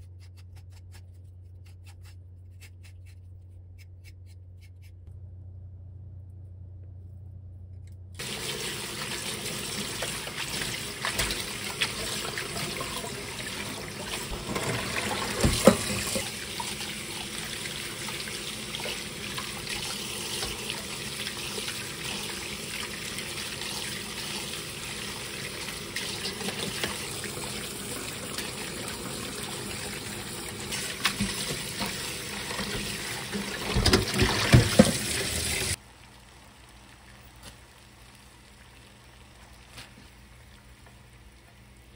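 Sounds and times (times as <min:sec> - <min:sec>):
tap running into water: 0:14.1 - 0:16.8, 0:30.7 - 0:35.8.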